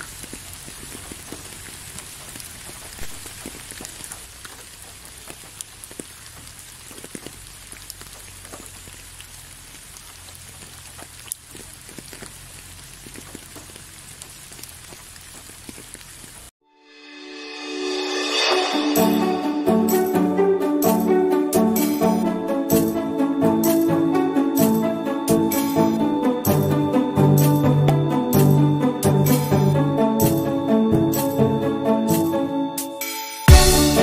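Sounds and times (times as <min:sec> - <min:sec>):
raindrops tapping: 0:00.0 - 0:16.5
steady rain falling: 0:00.0 - 0:16.5.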